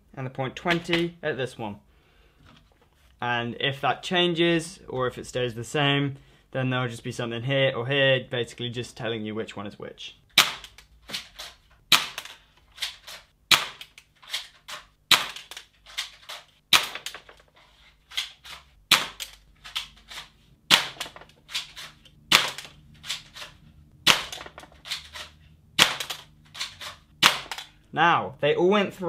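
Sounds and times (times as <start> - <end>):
airsoft pistol shots: 10.4 - 10.7, 11.9 - 12.3, 13.5 - 13.9, 15.1 - 15.5, 16.7 - 17.1, 18.9 - 19.2, 20.7 - 21.2, 22.3 - 22.7, 24.0 - 24.5, 25.8 - 26.2, 27.2 - 27.7.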